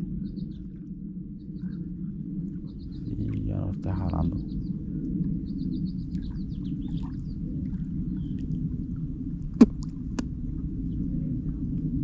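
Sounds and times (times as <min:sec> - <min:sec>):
wind rumble on microphone: 0:00.0 - 0:12.0
faint bird chirps: 0:00.1 - 0:00.8, 0:01.4 - 0:08.5.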